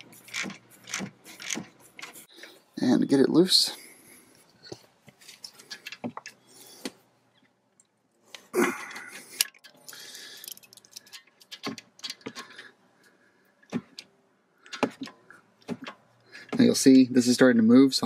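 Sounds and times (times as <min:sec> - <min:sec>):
metal tool clicks and clinks: 0:09.4 - 0:12.2.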